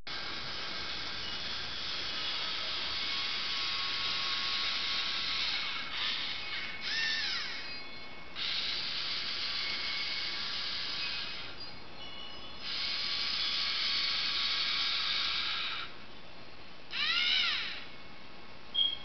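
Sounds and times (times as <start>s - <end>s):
robot motors and gears whirring: 0.1s - 7.8s, 8.4s - 11.7s, 12.6s - 15.9s
screeching call rising and falling: 0.5s - 11.7s, 16.9s - 17.9s.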